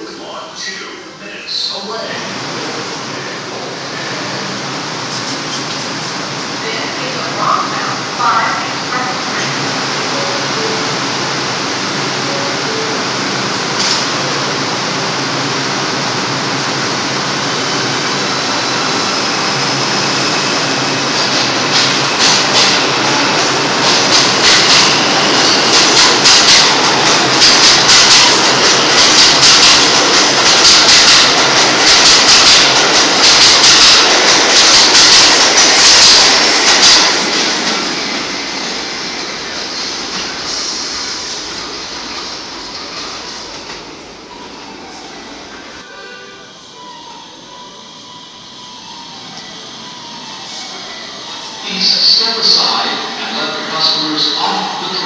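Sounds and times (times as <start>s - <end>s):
subway train pulling out: 0.0s - 55.0s.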